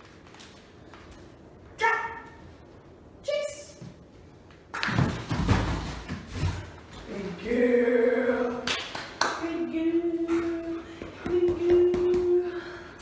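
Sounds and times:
scuffling and thumping: 4.8s - 7.0s.

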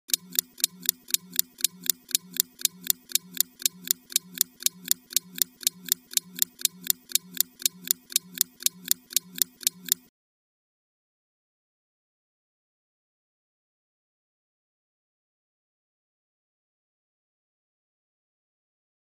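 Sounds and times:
timer ticking: 0.0s - 10.1s.

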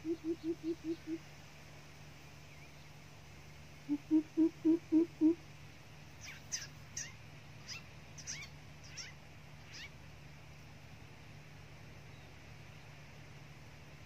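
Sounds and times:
bird deep hollow hoots: 0.0s - 1.2s, 3.8s - 5.4s
high falling bird chirps: 6.2s - 10.0s.

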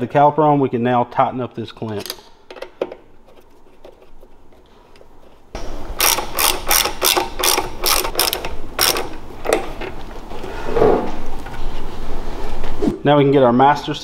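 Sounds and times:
ratchet wrench clicking: 6.0s - 9.6s.

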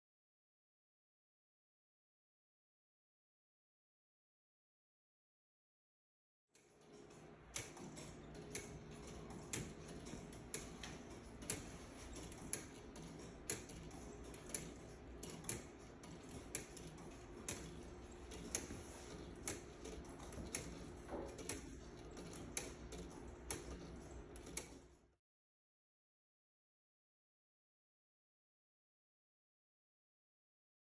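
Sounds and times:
pendulum clock ticking: 6.6s - 24.9s
low room hum: 6.6s - 25.2s.

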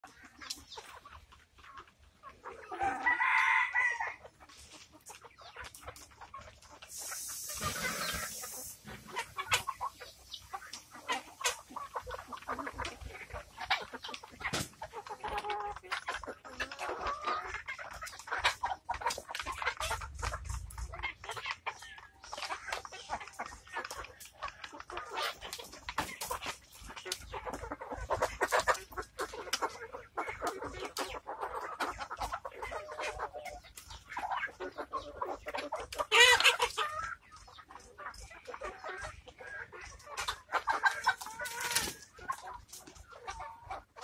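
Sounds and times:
chickens clucking: 0.0s - 44.0s
rooster crowing: 2.8s - 4.2s
rustling hiss: 6.6s - 11.6s.

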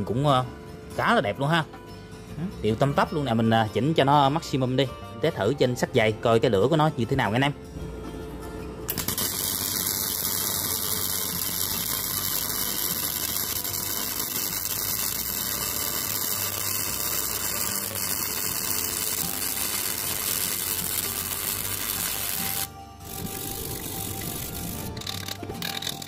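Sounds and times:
welding arc burning: 8.9s - 26.0s.

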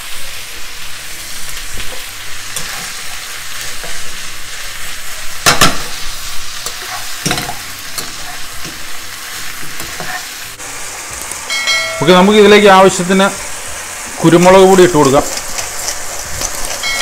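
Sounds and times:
meat and peppers sizzling in a pan: 0.0s - 17.0s
metal tongs clinking against pan: 16.7s - 17.0s.

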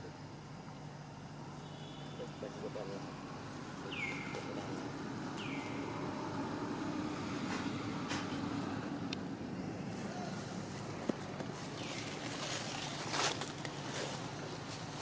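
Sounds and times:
outdoor background hum: 0.0s - 15.0s.

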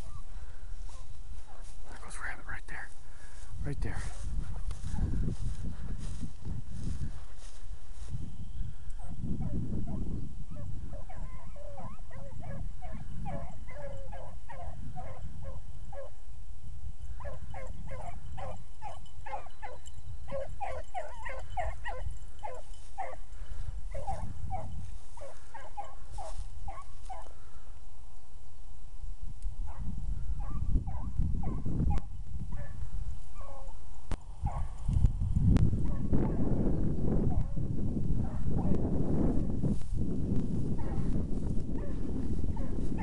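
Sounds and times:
hounds yelping: 0.0s - 1.8s, 8.9s - 16.2s, 17.1s - 27.5s, 29.7s - 33.8s, 34.4s - 34.8s, 40.8s - 41.2s.

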